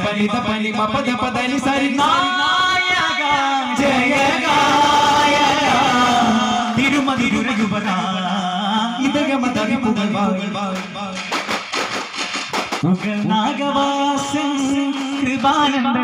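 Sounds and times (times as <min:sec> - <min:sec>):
men singing chant in chorus: 0:01.7 - 0:07.4.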